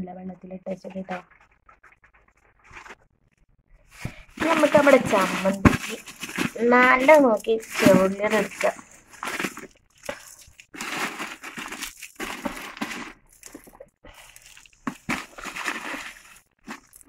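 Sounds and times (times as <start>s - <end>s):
shallot skins rustling: 3.8s - 17.0s.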